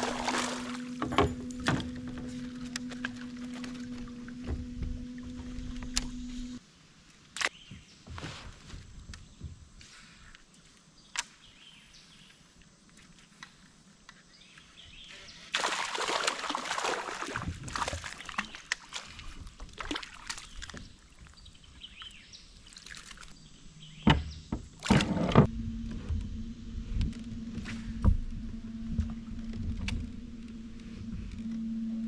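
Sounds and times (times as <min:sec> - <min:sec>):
water sloshing around kayak: 0:00.0 - 0:06.6, 0:14.9 - 0:23.9.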